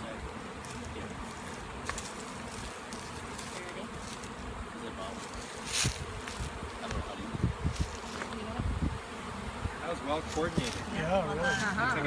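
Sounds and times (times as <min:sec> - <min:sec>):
honeybees buzzing: 0:00.0 - 0:12.0
scratchy rustle: 0:05.0 - 0:07.0, 0:10.2 - 0:12.0.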